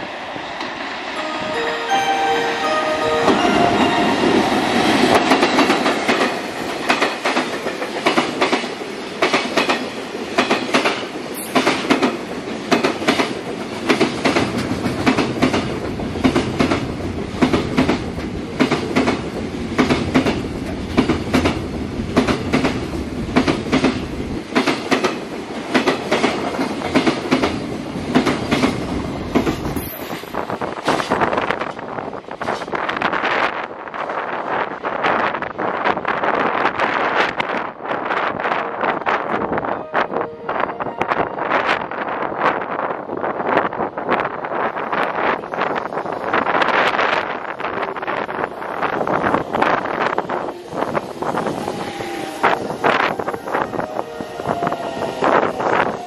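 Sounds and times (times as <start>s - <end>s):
electric locomotive passing: 0.0s - 56.0s
train horn held tone: 1.2s - 5.6s, 38.6s - 42.0s, 51.7s - 56.0s.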